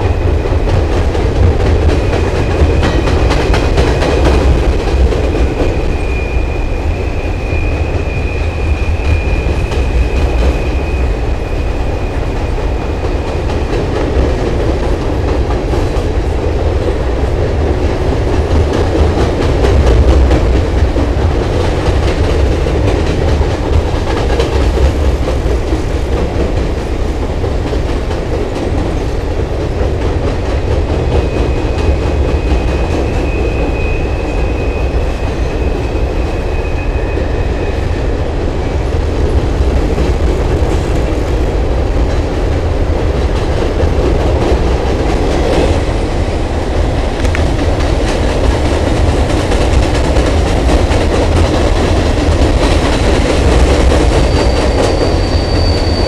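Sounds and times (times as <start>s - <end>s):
train wheels rumbling on rail: 0.0s - 56.0s
faint high squeal: 5.7s - 12.2s, 31.3s - 38.1s, 54.1s - 56.0s.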